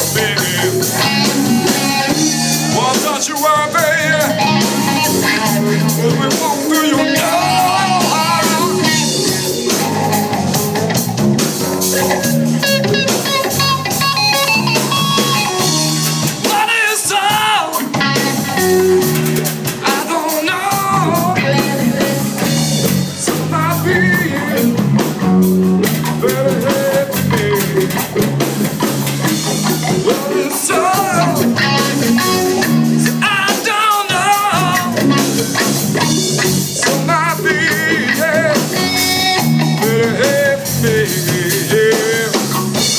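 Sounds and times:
electric bass: 0.0 - 16.5, 17.8 - 19.9, 20.7 - 33.5, 34.2 - 42.9
drum kit: 0.0 - 42.9
electric guitar: 0.0 - 42.9.

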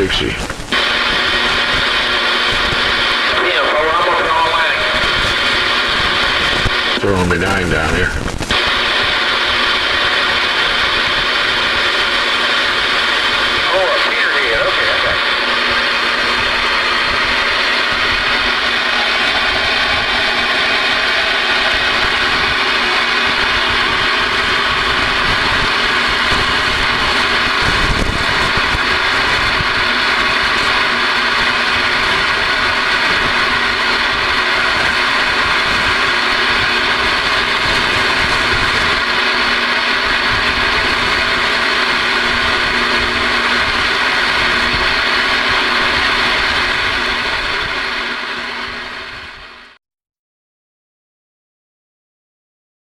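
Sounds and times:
radio static hiss: 0.0 - 49.0
radio click: 0.2 - 1.0.

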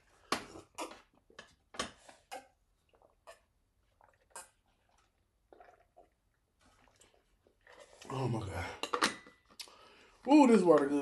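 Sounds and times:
man gulping water: 2.3 - 9.8.

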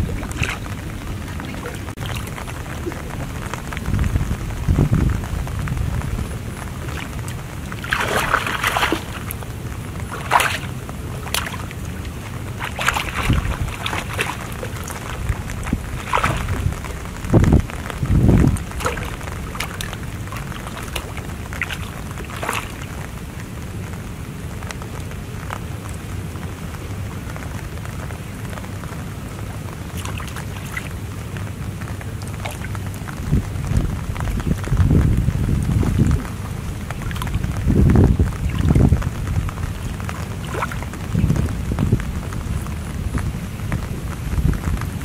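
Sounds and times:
fish splashing in water: 0.0 - 3.8, 5.9 - 23.6, 29.4 - 33.6, 36.1 - 42.9
wind rumble on microphone: 0.0 - 45.0.

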